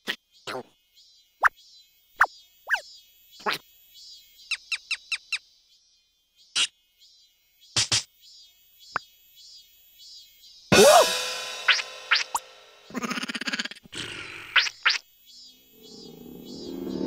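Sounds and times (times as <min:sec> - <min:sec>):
squeaky cartoon chirps: 0:11.7 - 0:13.8.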